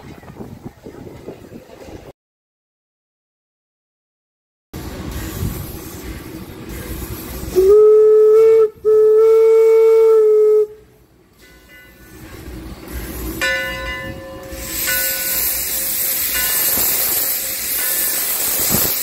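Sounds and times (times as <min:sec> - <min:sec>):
steam hissing: 0:04.8 - 0:10.9, 0:11.9 - 0:19.0
steam locomotive whistle blasts: 0:07.4 - 0:10.9.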